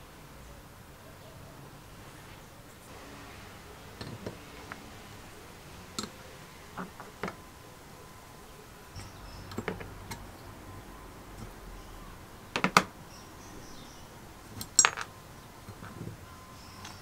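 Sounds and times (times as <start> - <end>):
metal clicks of hand tools: 14.6 - 15.1.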